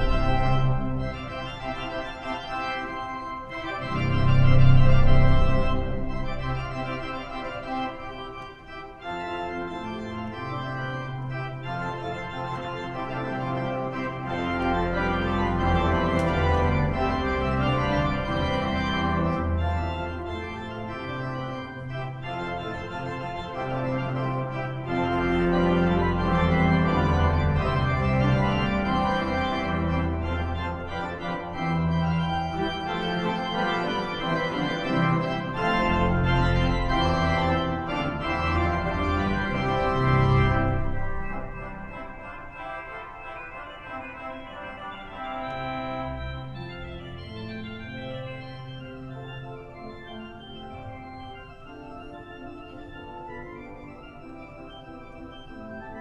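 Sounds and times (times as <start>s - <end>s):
deep organ bass notes: 0.0s - 8.2s, 9.0s - 42.5s
pipe organ playing a hymn: 0.0s - 56.0s.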